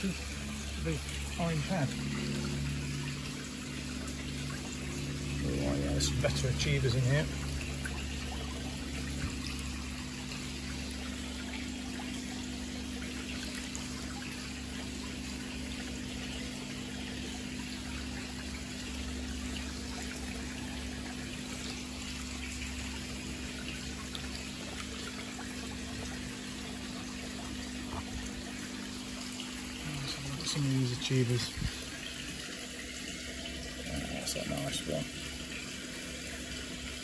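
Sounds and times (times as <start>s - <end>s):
low hum: 0.0s - 26.4s
water pouring into tank: 0.0s - 37.0s.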